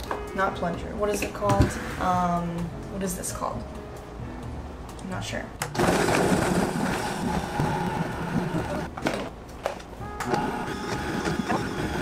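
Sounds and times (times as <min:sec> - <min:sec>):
blender motor running: 0:05.8 - 0:08.9, 0:10.3 - 0:12.0.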